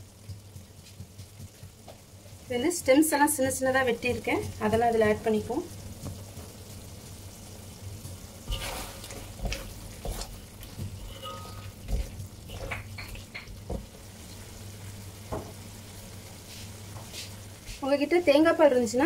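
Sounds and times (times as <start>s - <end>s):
gravy sizzling: 0.0s - 19.0s
metal spatula scraping a pan: 8.5s - 13.2s.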